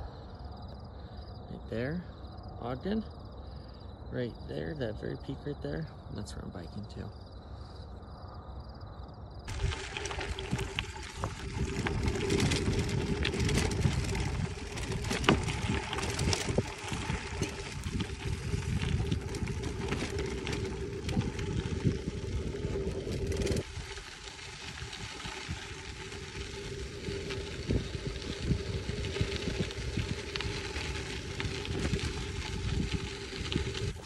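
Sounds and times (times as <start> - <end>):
bike clicks and rattles: 9.5 - 34.0
tyres rumbling over dirt: 9.5 - 34.0.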